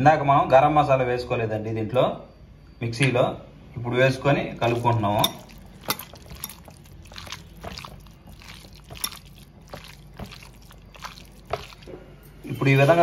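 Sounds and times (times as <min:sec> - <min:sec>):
hand squelching prawns in paste: 0:04.6 - 0:12.1.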